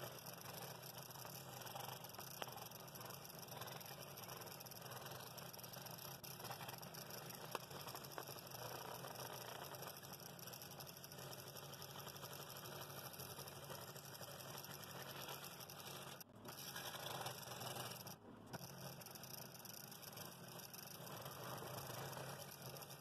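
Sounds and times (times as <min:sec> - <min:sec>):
scroll saw cutting wood: 0:15.7 - 0:18.7.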